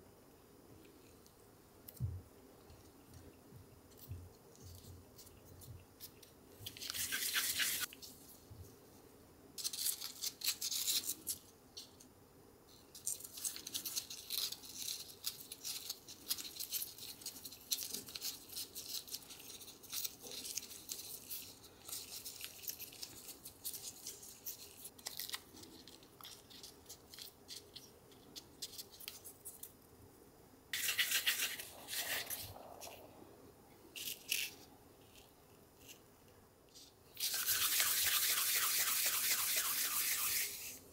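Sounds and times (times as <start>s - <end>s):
gloved hands rubbing dough: 3.7s - 8.4s, 30.8s - 33.2s, 36.8s - 40.9s.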